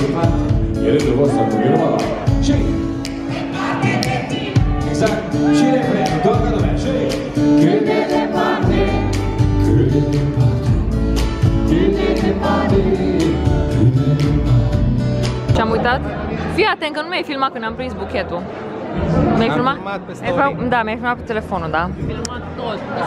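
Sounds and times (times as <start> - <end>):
live band playing: 0.0 - 17.1
man singing into a microphone: 4.8 - 7.9, 9.6 - 10.8, 11.7 - 14.9.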